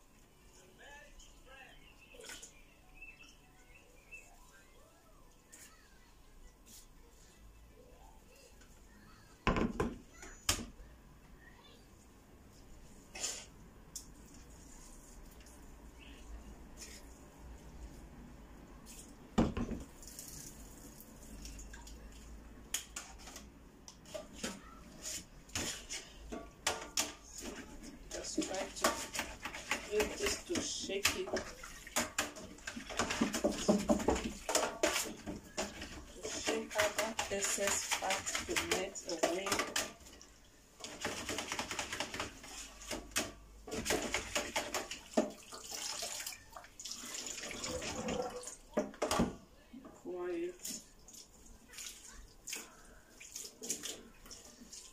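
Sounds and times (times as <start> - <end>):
water splashing in a steel sink: 19.8 - 23.4, 24.0 - 49.1, 50.6 - 54.9
water dripping: 19.9 - 22.9, 45.0 - 49.0.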